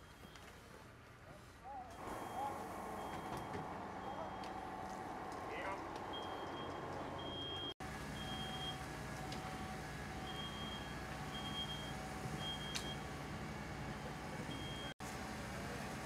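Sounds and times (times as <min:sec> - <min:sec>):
diesel engine running: 0:02.0 - 0:16.0
faint lower beeps: 0:02.2 - 0:04.6, 0:06.1 - 0:13.1, 0:14.5 - 0:15.0.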